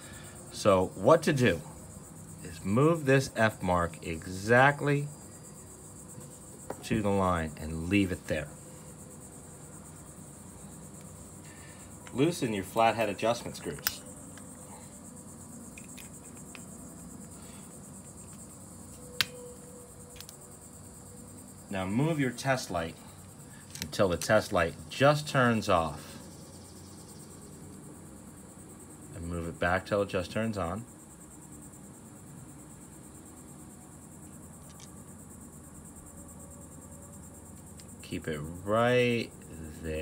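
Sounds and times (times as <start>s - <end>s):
insect chirring: 0.0s - 40.0s
sharp metallic click: 13.6s - 14.5s.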